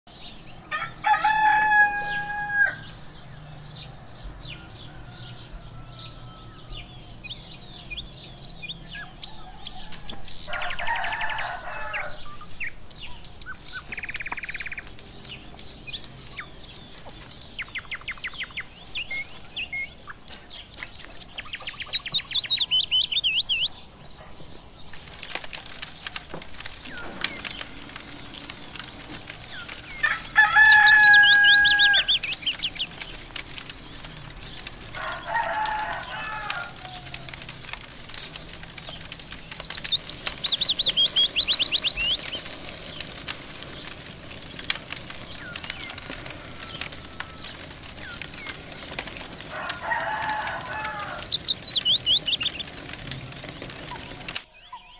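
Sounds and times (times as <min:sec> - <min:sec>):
small birds chirping: 0:00.1 - 0:54.9
rooster crowing: 0:00.7 - 0:03.1, 0:03.9 - 0:07.1, 0:08.9 - 0:12.4, 0:26.6 - 0:37.9, 0:43.8 - 0:52.6
sharp crackling clicks: 0:09.7 - 0:23.6, 0:24.8 - 0:54.5
fast falling bird trill: 0:24.9 - 0:54.4.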